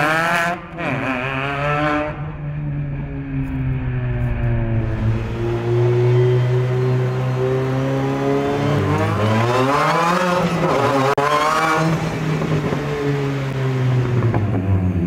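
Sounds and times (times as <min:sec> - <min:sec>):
race car engine accelerating: 0:03.3 - 0:15.0.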